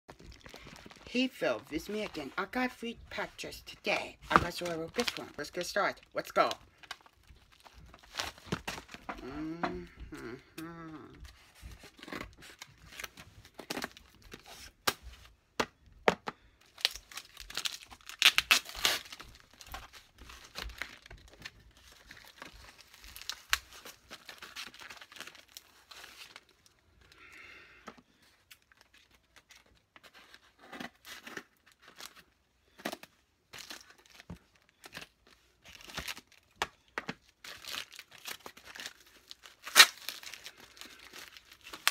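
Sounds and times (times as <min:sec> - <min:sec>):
paper and plastic tearing: 0:00.2 - 0:09.2, 0:37.4 - 0:41.9
person humming: 0:09.1 - 0:11.3.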